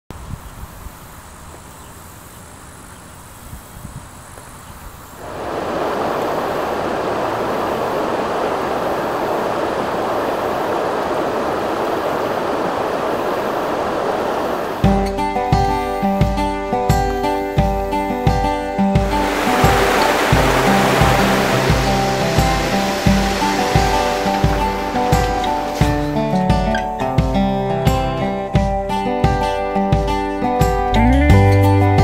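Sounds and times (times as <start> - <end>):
river rushing over stones: 5.2 - 14.9, 19.0 - 26.6.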